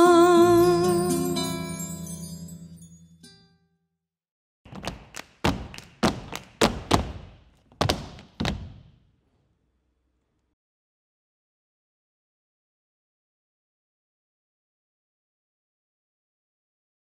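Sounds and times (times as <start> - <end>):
dance shoes stamping on stage: 4.7 - 9.0.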